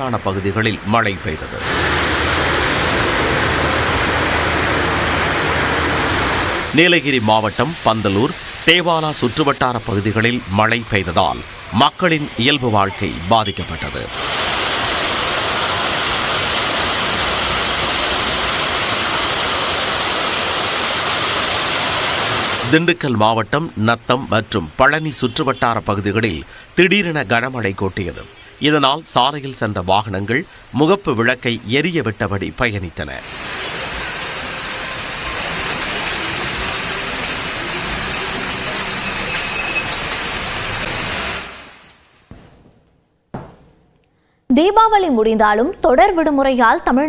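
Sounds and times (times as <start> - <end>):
rain on wet street: 1.6 - 22.8, 33.2 - 42.1.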